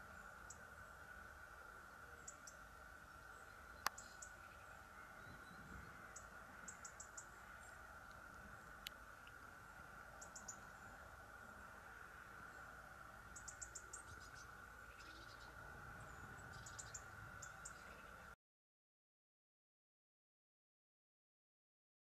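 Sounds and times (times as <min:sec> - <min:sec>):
faint steady hum: 0:00.0 - 0:18.4.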